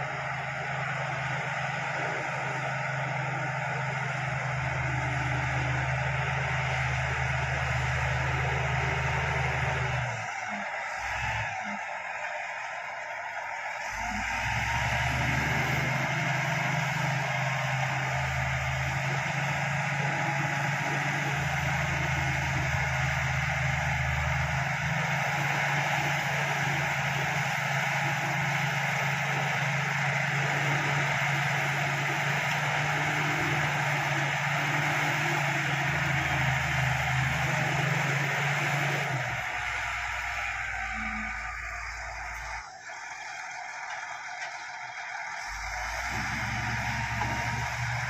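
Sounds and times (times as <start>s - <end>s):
bulldozer diesel engine running: 0.0s - 48.0s.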